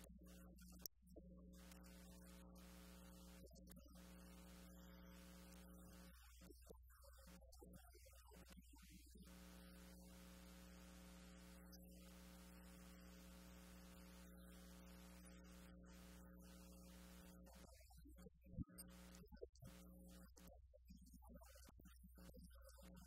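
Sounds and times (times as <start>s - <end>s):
faint electrical mains hum: 0.0s - 7.3s, 8.3s - 17.8s.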